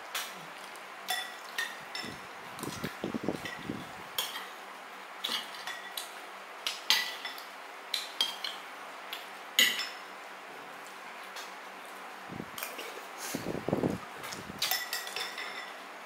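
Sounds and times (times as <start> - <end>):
utensils clinking on dishware: 1.1 - 2.2, 5.2 - 6.1, 9.6 - 10.0, 14.6 - 15.8.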